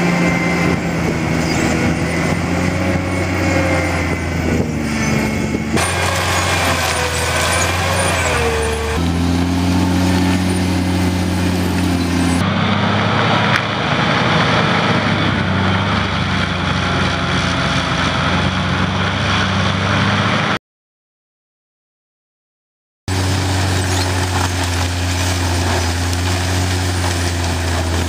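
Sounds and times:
grinding of shredding brush: 0.0s - 12.5s, 23.1s - 28.0s
mulcher engine running hard: 0.0s - 20.6s, 23.1s - 28.0s.

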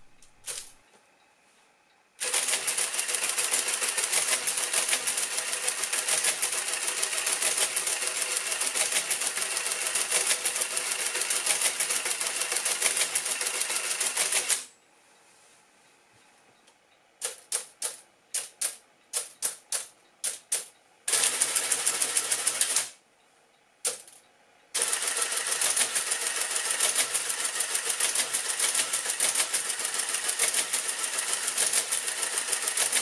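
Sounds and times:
mechanical calculator clattering: 2.2s - 14.7s, 17.2s - 22.9s, 24.8s - 33.0s.

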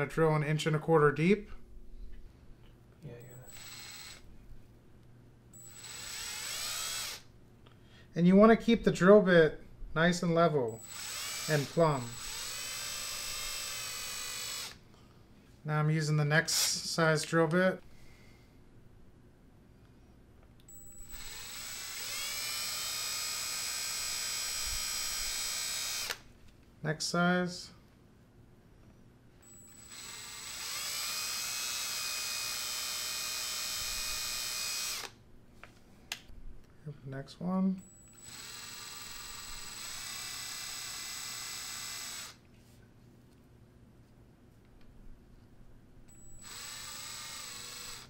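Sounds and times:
electric drill whining: 3.4s - 4.3s, 5.6s - 7.3s, 10.8s - 14.8s, 20.7s - 26.2s, 29.4s - 35.2s, 37.8s - 42.4s, 46.1s - 48.0s.

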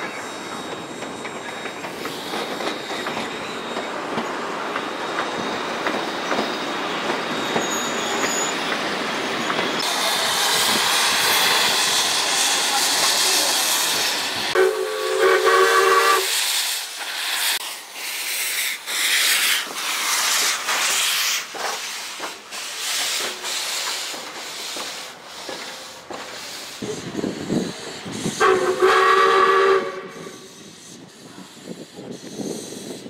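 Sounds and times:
hissing steam: 0.0s - 33.0s
steam locomotive whistle: 12.7s - 16.4s, 27.2s - 30.8s.

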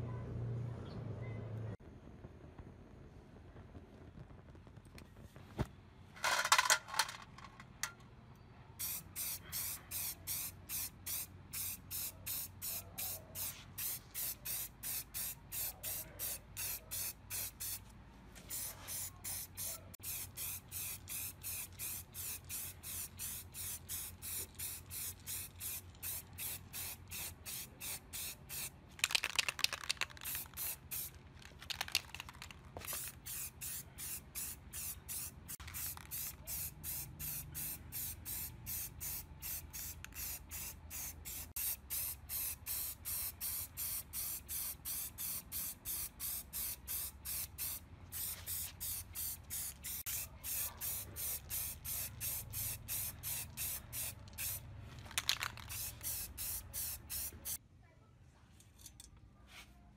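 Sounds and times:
spray can spraying in bursts: 8.8s - 17.8s, 18.5s - 57.6s.

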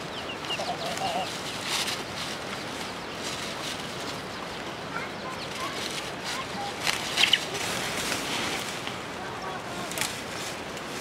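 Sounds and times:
faint bird chirps: 6.6s - 7.6s.

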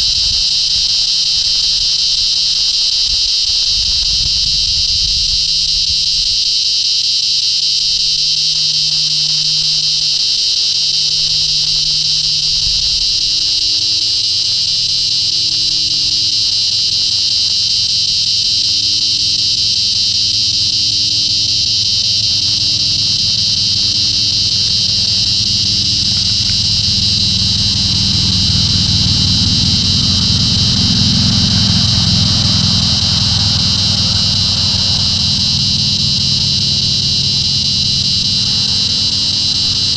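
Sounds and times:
cicada buzzing: 0.0s - 39.9s.

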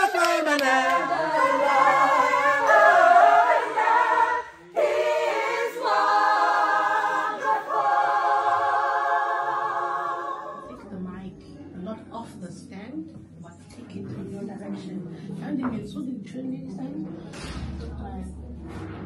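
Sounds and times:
choir singing a cappella: 0.0s - 10.9s.

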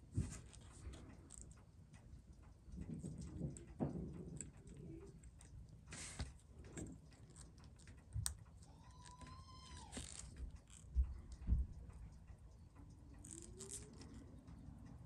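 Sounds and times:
small clicks and handling: 0.4s - 1.7s, 2.7s - 11.4s, 12.8s - 14.6s.

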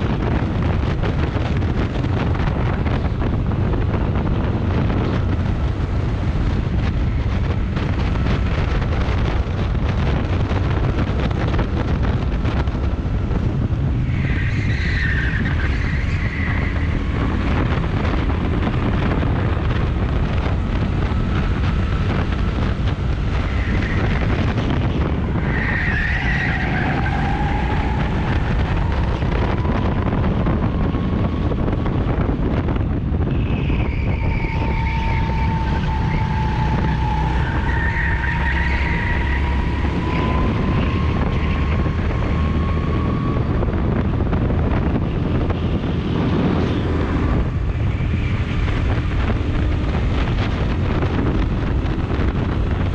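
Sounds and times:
go-kart engine: 0.0s - 52.9s
wind noise on microphone: 0.0s - 52.9s
tyre squeals: 33.3s - 42.6s.

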